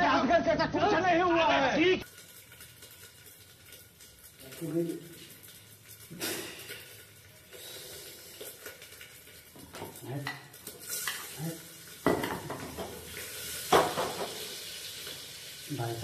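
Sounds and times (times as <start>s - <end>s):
food sizzling in metal pot: 1.8s - 16.0s
spoon stirring and scraping pot: 5.2s - 11.4s.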